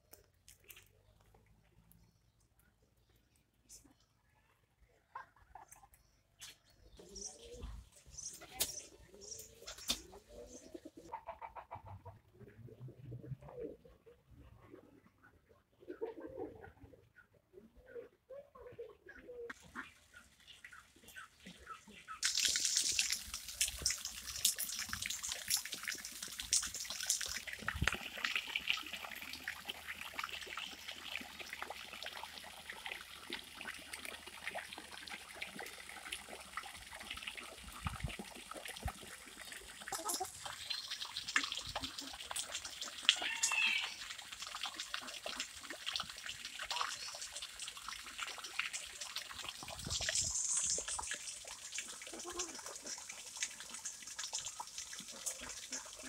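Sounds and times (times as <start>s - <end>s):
fountain splashing into pond: 22.2s - 56.0s.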